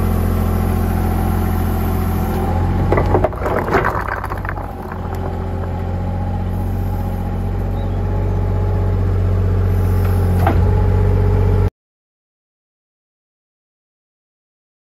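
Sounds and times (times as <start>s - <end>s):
diesel engine running: 0.0s - 11.7s.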